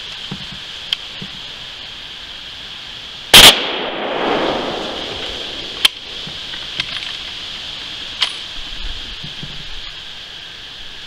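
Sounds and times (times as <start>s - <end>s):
gunshot with echo: 3.4s - 5.8s.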